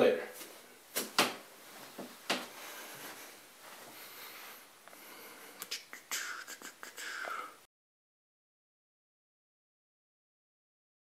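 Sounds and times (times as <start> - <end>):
room hiss: 0.0 - 7.7.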